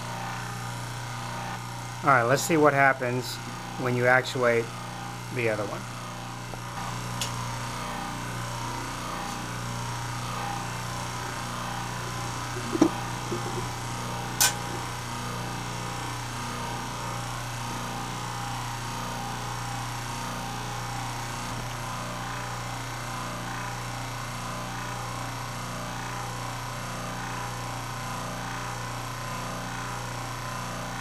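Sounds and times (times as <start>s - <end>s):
electric motor humming and whirring: 0.0s - 2.7s, 3.3s - 25.0s.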